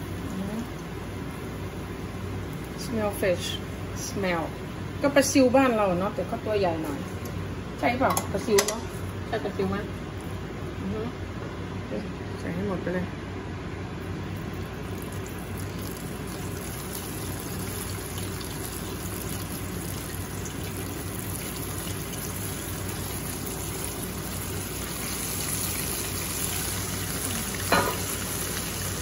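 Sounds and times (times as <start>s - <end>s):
fish sizzling in hot oil: 14.4s - 29.0s.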